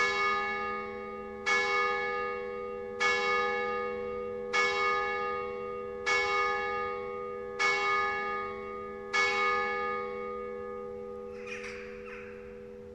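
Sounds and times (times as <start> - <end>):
church bell tolling: 0.0 - 12.9.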